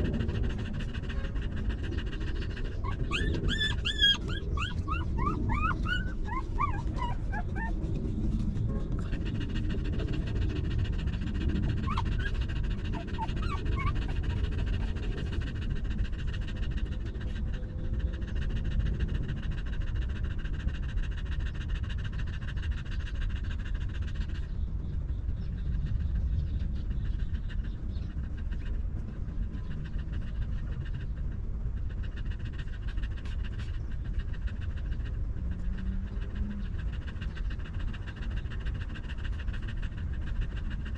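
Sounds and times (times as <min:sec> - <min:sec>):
dog panting: 0:00.0 - 0:40.9
puppies squeaking: 0:02.8 - 0:08.0, 0:11.8 - 0:14.9.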